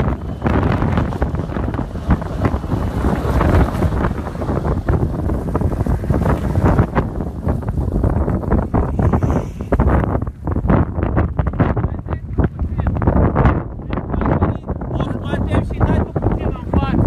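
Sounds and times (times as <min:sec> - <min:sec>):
suv engine: 0:00.0 - 0:10.8
wind buffeting microphone: 0:00.0 - 0:17.0.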